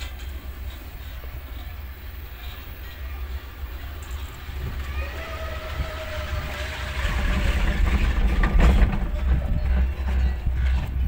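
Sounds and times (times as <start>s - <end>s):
haul rope whining through sheaves: 3.2s - 9.6s
clatter of rollers: 5.8s - 11.0s.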